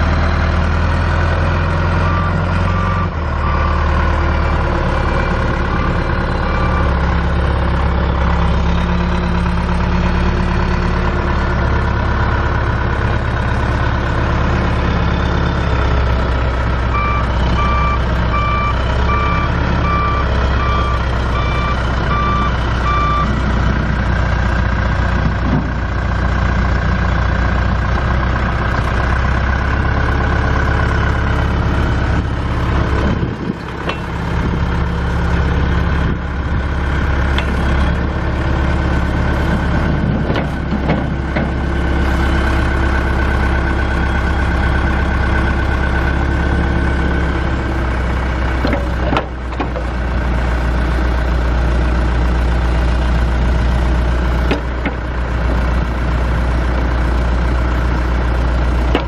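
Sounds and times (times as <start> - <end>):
diesel engine running: 0.0 - 59.0
reverse alarm beeping: 2.0 - 3.9, 16.9 - 23.3.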